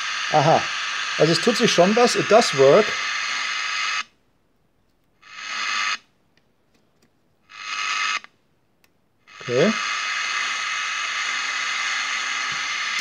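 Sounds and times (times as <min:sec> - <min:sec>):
loudspeaker hissing: 0:00.0 - 0:03.0.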